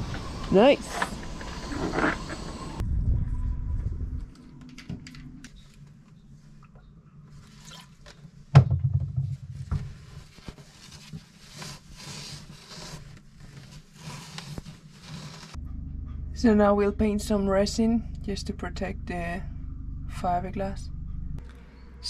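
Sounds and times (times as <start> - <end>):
loud knock: 8.6 - 9.9
cloth rubbing on hull: 9.5 - 15.6.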